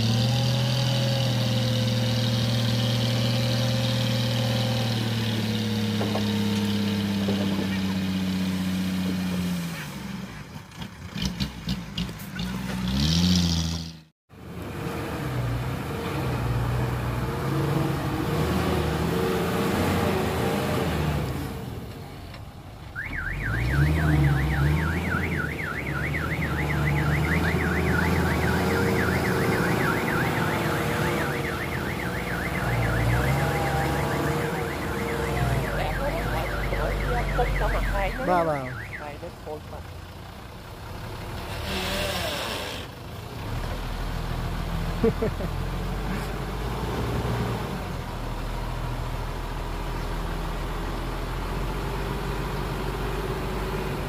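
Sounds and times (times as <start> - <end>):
dump truck engine running: 0.0 - 9.4, 16.4 - 54.0
warbling electronic alarm: 23.0 - 39.4.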